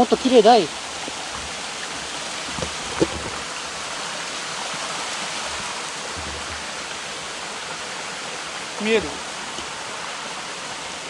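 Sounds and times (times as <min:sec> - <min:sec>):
stream water rushing: 0:00.0 - 0:11.0
light knocks: 0:01.0 - 0:03.5, 0:05.5 - 0:07.0.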